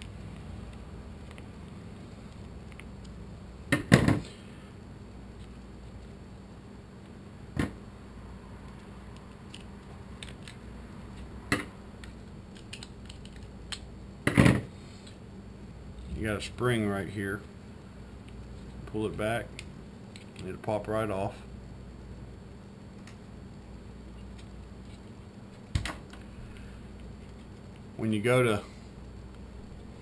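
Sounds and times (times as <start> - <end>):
plastic parts clacking: 12.5 - 13.8.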